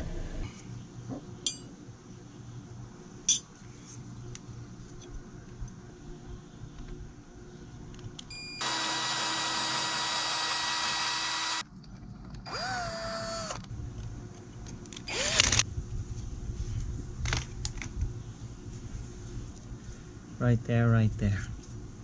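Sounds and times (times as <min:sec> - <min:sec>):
cordless drill boring metal: 0:08.6 - 0:11.6, 0:12.5 - 0:13.6, 0:15.1 - 0:15.6.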